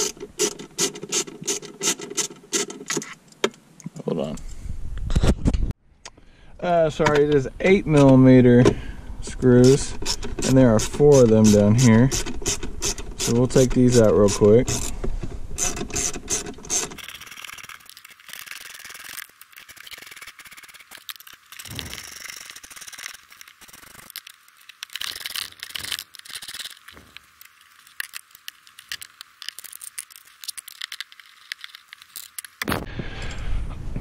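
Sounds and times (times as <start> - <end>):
hand ratchet clicking: 9.6 - 14.9, 15.6 - 32.6.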